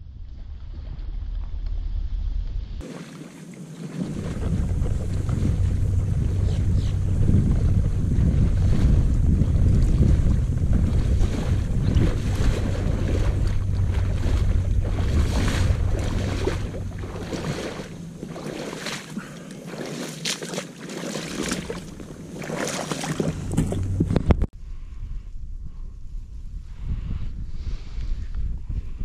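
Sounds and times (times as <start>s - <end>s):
wind rumbling on microphone: 0.0s - 20.4s, 21.1s - 29.0s
footsteps sloshing through water: 2.8s - 24.3s.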